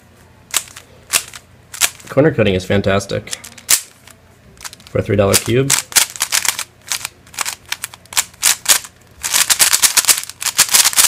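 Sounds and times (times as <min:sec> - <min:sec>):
speed cube layers clicking: 0:04.6 - 0:11.0.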